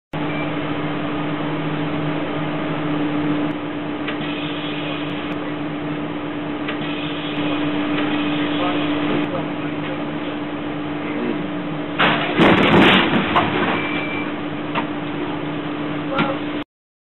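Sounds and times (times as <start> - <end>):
bus interior engine hum: 0.2 - 16.6.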